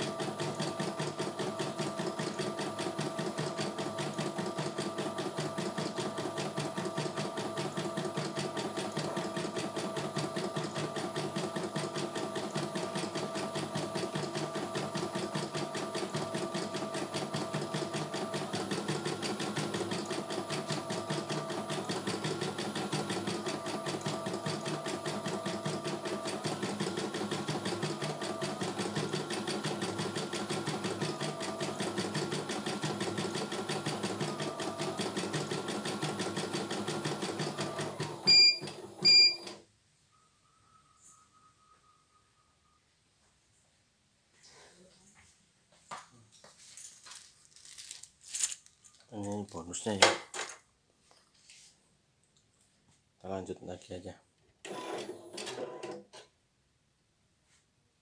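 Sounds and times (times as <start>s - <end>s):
embroidery machine stitching: 0.0s - 39.6s, 54.6s - 56.3s.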